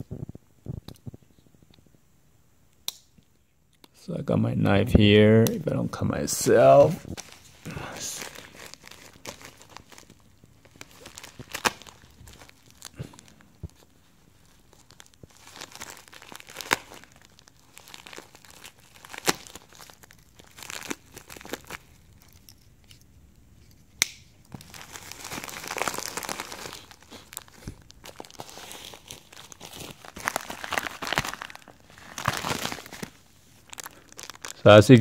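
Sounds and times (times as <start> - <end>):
sharp plastic snaps: 2.7 - 4.0, 24.0 - 24.3
plastic crinkling and tearing: 7.0 - 23.0, 24.5 - 35.0.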